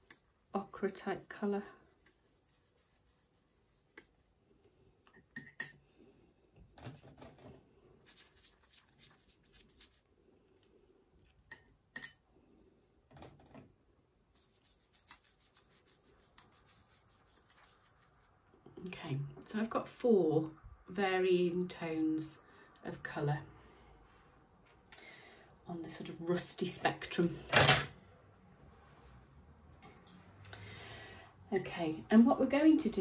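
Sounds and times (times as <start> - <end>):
paintbrush scrubbing in palette: 0.0 - 4.4, 8.0 - 10.1, 14.3 - 18.4, 28.8 - 30.1.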